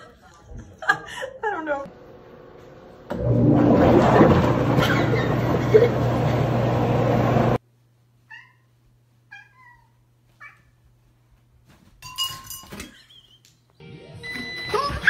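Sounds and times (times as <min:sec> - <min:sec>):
cat meowing: 0:09.3 - 0:10.8.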